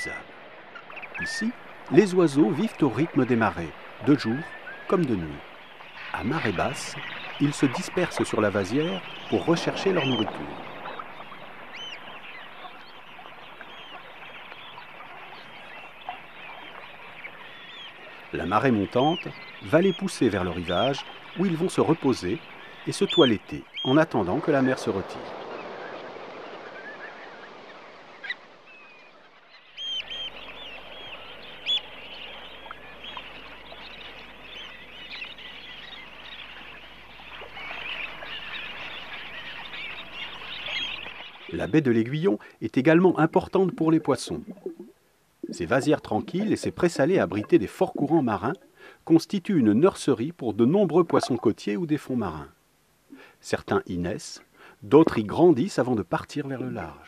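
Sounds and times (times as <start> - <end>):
flock of waterbirds calling: 0.0 - 57.0
steady hiss: 41.7 - 56.2.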